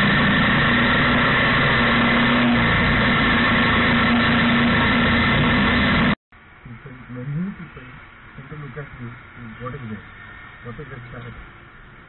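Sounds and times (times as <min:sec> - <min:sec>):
motorcycle engine running: 0:00.0 - 0:06.2
wind and road rush: 0:00.0 - 0:12.0.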